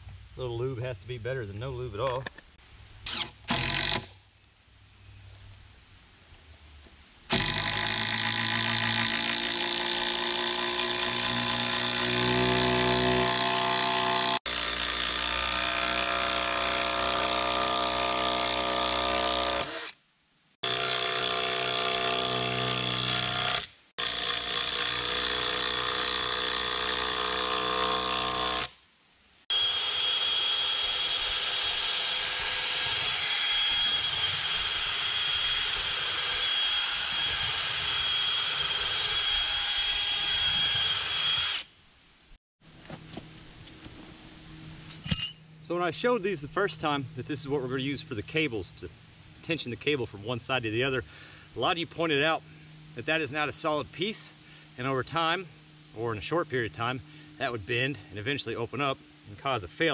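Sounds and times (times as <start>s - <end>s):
power drill driving screws: 3.1s - 4.1s, 7.3s - 20.0s, 20.6s - 28.8s, 29.5s - 41.7s.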